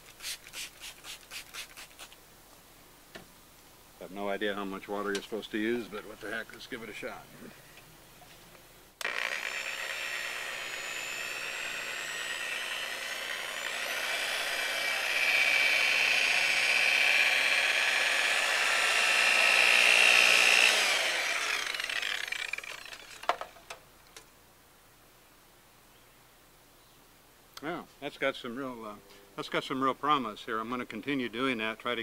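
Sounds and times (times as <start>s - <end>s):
electric rotary buffer whining: 9.0s - 23.6s.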